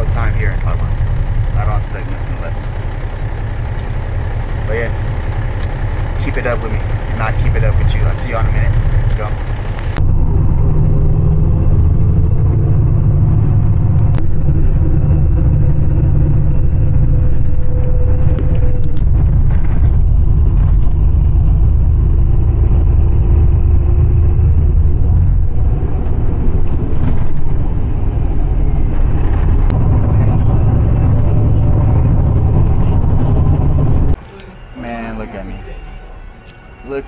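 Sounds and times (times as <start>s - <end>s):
bus engine and road rumble: 0.0s - 37.0s.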